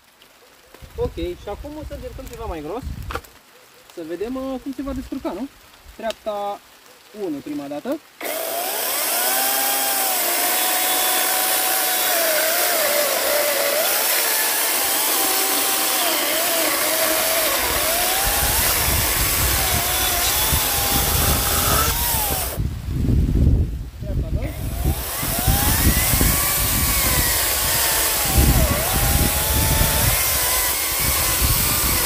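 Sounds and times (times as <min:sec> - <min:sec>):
chainsaw motor whine: 0:08.2 - 0:22.6, 0:24.5 - 0:32.0
chain rasping through log: 0:10.3 - 0:22.6.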